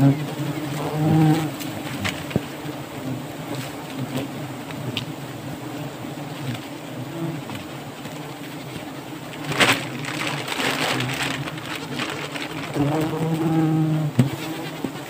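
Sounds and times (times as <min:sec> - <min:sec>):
bees buzzing: 0:00.0 - 0:15.0
rustling: 0:00.1 - 0:05.1, 0:06.2 - 0:15.0
sharp crack: 0:09.4 - 0:12.9.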